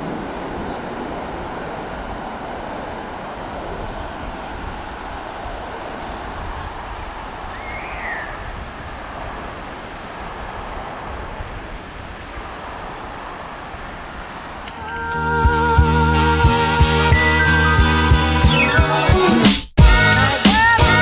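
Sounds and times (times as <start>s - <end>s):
wind rumbling on microphone: 0.0s - 15.1s
ocean surf on beach: 0.0s - 15.3s.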